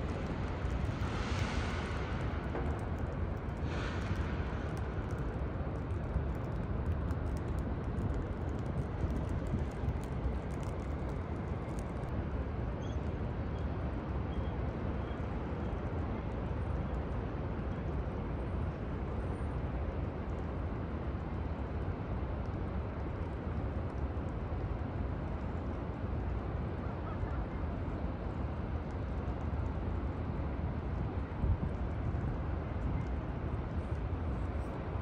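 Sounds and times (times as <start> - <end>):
rain hissing: 0.0 - 5.3
traffic rumble: 0.0 - 35.0.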